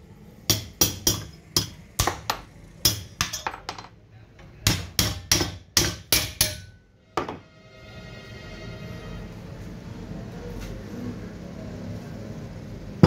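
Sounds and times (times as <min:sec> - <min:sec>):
hammer knocking on metal: 0:04.6 - 0:07.4.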